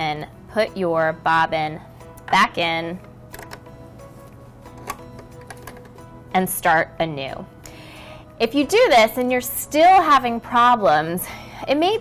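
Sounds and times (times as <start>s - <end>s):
soft background music: 0.0s - 12.0s
bobbin case clicking into sewing machine: 3.3s - 3.7s, 4.7s - 6.0s.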